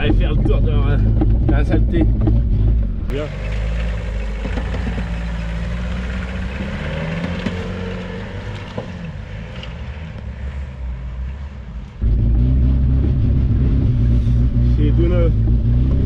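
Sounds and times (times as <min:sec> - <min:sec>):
off-road vehicle engine: 0:00.0 - 0:16.0.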